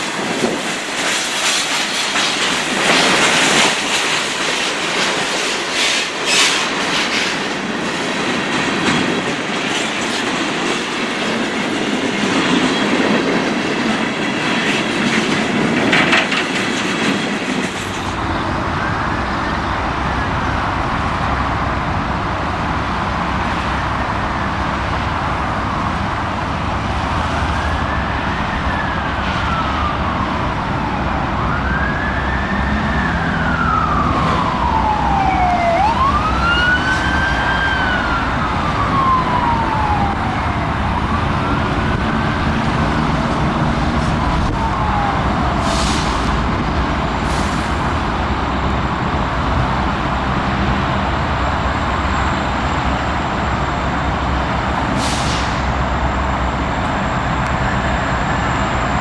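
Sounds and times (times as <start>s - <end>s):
diesel locomotives rumbling: 0.0s - 59.0s
siren wailing: 27.2s - 46.5s.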